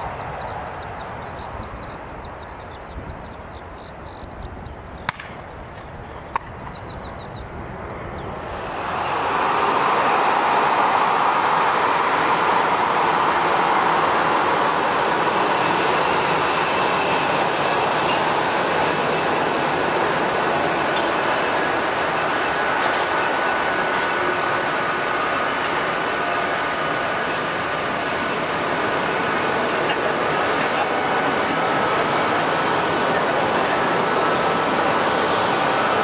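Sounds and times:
bird chirps: 0.0 - 8.7
jet engines rushing: 0.0 - 36.0.

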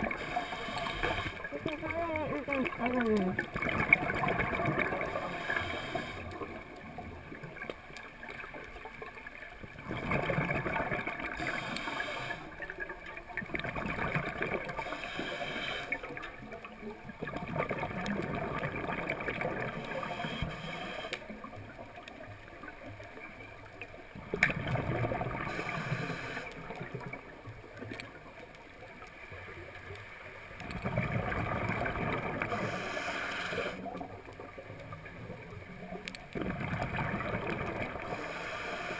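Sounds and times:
underwater regulator breathing: 0.0 - 1.5, 4.7 - 6.5, 11.3 - 12.6, 14.6 - 16.2, 19.7 - 21.4, 25.4 - 26.8, 32.3 - 34.0, 38.0 - 38.9
exhaled bubbles gurgling: 0.0 - 29.9, 30.5 - 38.9.

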